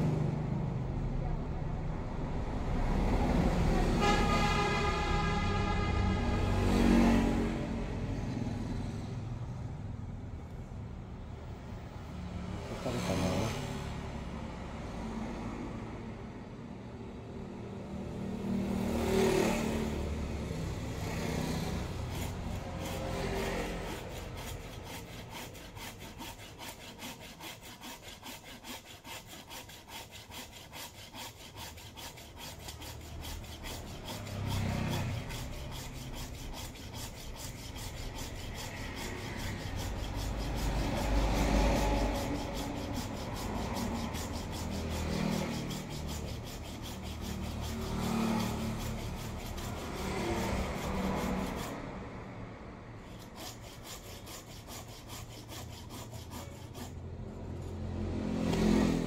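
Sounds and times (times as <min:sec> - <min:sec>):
hand saw rasping through wood: 0:12.6 - 0:14.0, 0:18.9 - 0:52.2, 0:53.0 - 0:59.0.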